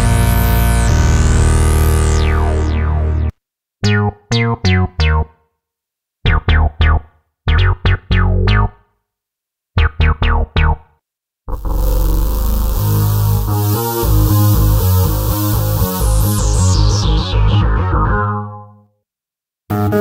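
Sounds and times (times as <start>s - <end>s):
synthesizer chord with filter sweep: 0.0s - 3.3s, 11.5s - 18.6s
plucky synth bass notes: 0.0s - 5.3s, 6.3s - 8.8s, 9.8s - 10.9s, 11.5s - 18.7s.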